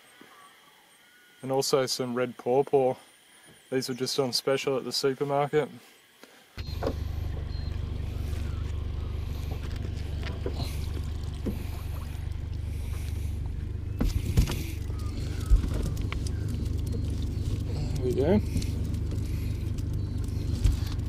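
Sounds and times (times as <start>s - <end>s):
boat motor humming: 6.6s - 21.0s.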